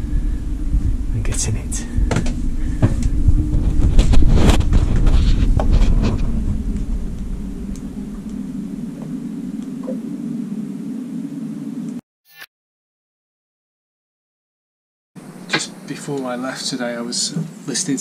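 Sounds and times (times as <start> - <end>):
low hum: 0.0 - 12.0
wind buffeting microphone: 0.0 - 12.0.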